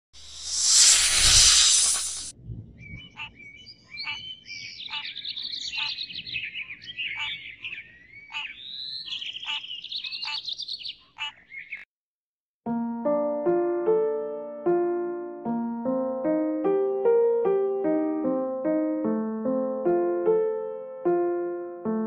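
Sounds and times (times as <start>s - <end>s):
loud whoosh: 0.2s - 2.3s
birds chirping and trilling: 2.0s - 11.8s
short sharp bird calls: 3.0s - 11.8s.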